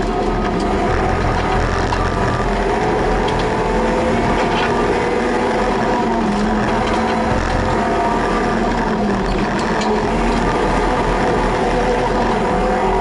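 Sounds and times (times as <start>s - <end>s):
road and wind noise: 0.0s - 13.0s
car engine revving hard: 0.2s - 13.0s.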